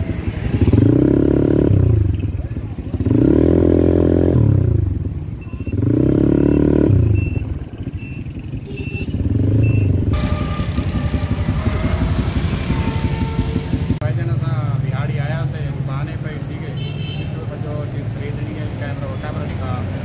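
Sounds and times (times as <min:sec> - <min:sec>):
motorcycle engine revving: 0:00.0 - 0:17.1
street traffic noise: 0:00.0 - 0:20.0
short high beeps: 0:05.4 - 0:10.8.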